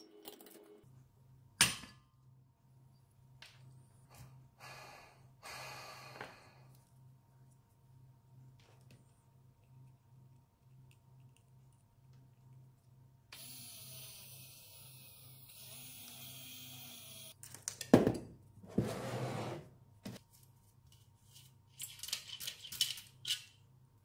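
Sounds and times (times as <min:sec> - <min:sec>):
electric motor whirring: 0:13.4 - 0:17.4.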